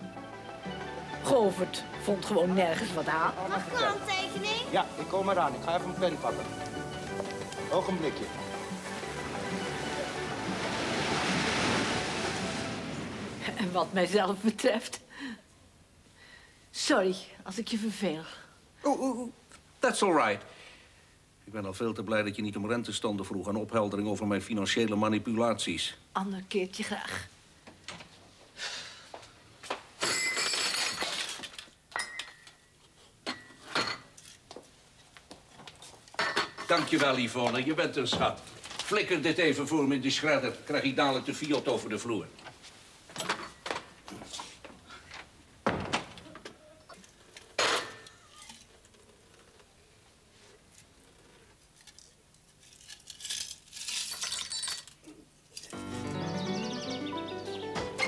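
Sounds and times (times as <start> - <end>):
music sting: 0.0 - 13.4, 55.8 - 58.0
glass and crockery clinking: 30.0 - 32.6, 33.3 - 34.2, 36.2 - 37.1.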